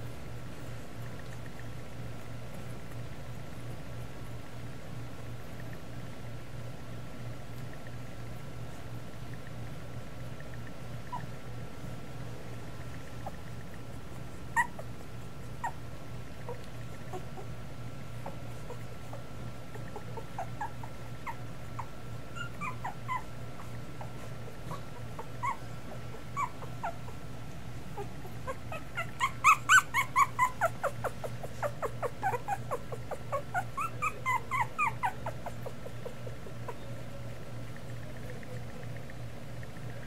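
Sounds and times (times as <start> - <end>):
puppies whimpering and squeaking: 11.0 - 11.4, 12.9 - 40.0.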